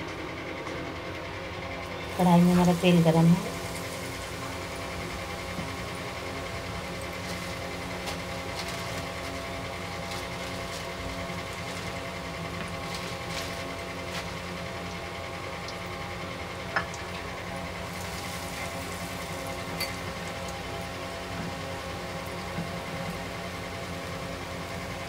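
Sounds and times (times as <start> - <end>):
food deep-frying in hot oil: 1.8 - 25.0.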